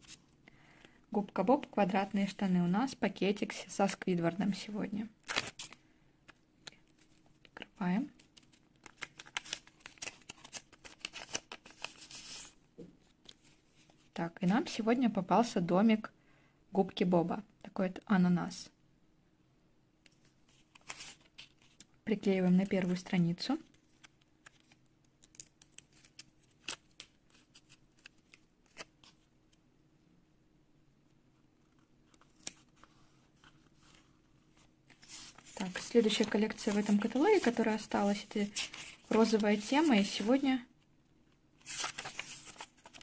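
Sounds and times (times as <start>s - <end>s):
paper rustling and crackling: 8.3s - 12.6s, 31.7s - 40.4s, 41.6s - 43.0s.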